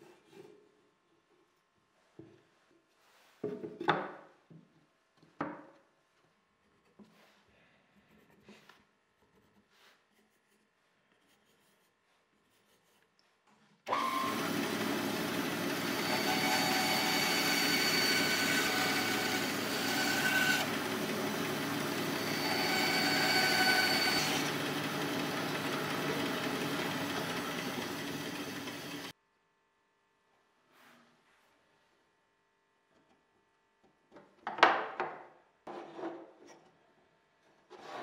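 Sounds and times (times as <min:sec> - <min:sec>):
band saw cutting plywood: 0:13.9 - 0:29.1.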